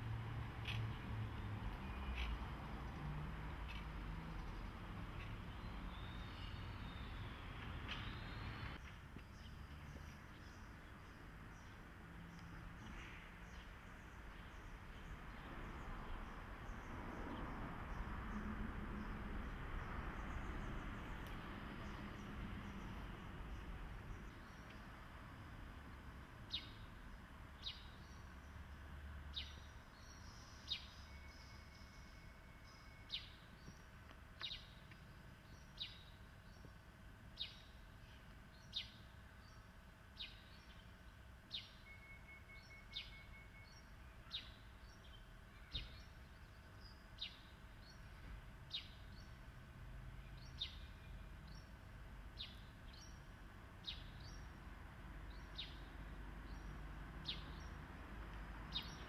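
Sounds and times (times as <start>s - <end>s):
bird chirping: 3.6s - 17.2s, 29.3s - 36.8s, 37.4s - 49.4s, 50.2s - 51.8s, 52.4s - 54.6s, 55.3s - 57.8s, 58.6s - 59.0s.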